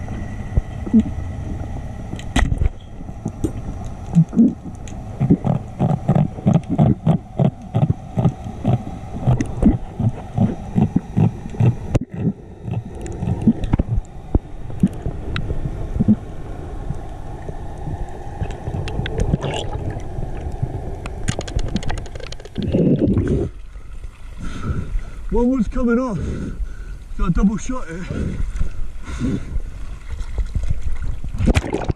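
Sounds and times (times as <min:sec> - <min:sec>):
underwater rush of water: 0:00.1 - 0:25.6, 0:27.8 - 0:31.9
underwater clicks: 0:02.1 - 0:16.2, 0:17.8 - 0:23.3
water splash: 0:30.0 - 0:31.9.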